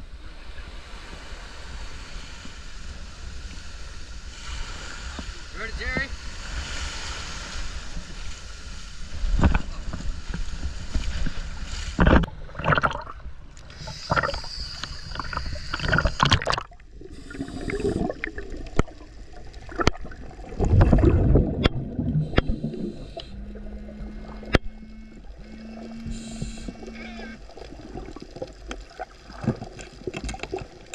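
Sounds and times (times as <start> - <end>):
surf washing and splashing: 0.0 - 23.2
regulator exhalation bubbles: 12.5 - 19.0
steady low hum: 12.7 - 28.3.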